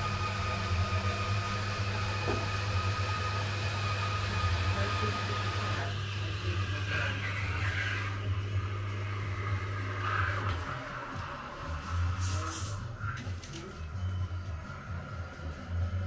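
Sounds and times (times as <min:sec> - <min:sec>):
indoor machine hum: 0:00.0 - 0:16.0
high whine: 0:06.4 - 0:16.0.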